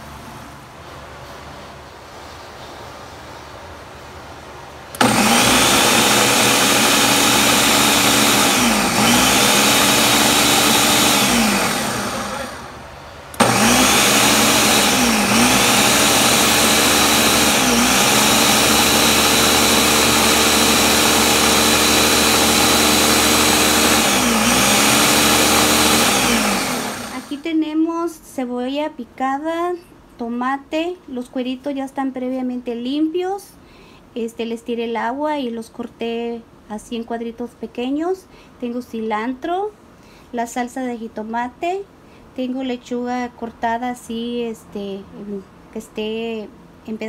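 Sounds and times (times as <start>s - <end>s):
blender motor whining: 5.0s - 12.8s, 13.4s - 27.4s.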